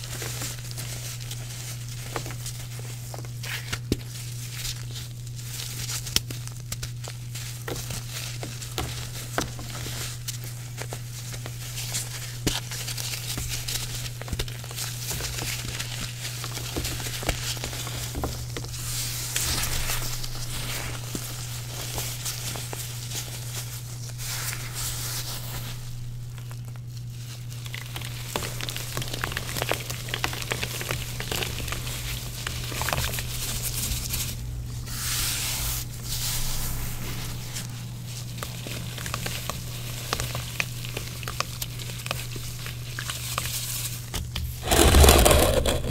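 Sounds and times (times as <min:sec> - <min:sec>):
wet chalk crumbling and crackling: 0:00.0 - 0:45.9
steady low hum: 0:15.0 - 0:45.9
sharp hiss: 0:34.8 - 0:38.1
wet chalk crunching by hand: 0:34.9 - 0:45.9.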